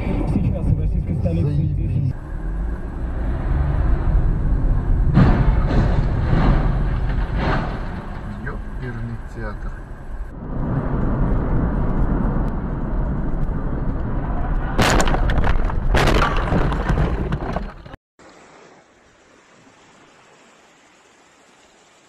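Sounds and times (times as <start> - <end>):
road rumble: 0.0 - 18.5
loud crashing impacts: 4.8 - 9.2, 14.6 - 18.0.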